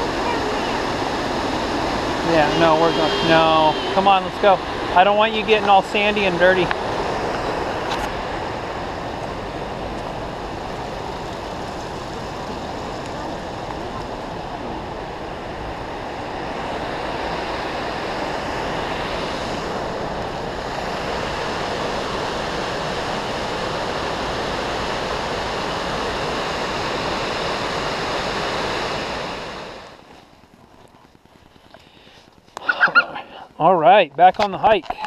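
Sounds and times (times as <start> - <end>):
waterfall and creek rushing: 0.0 - 15.7.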